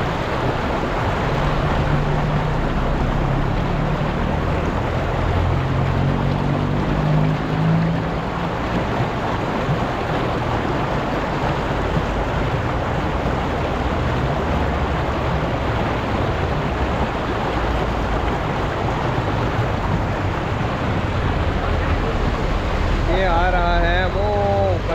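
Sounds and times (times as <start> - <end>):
stream rushing over rocks: 0.0 - 24.9.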